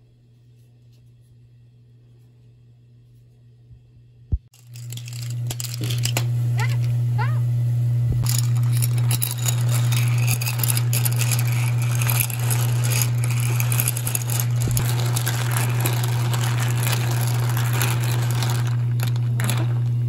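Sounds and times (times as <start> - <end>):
steady low hum: 0.2 - 20.0
shells clattering in a pot: 4.5 - 6.9, 8.2 - 20.0.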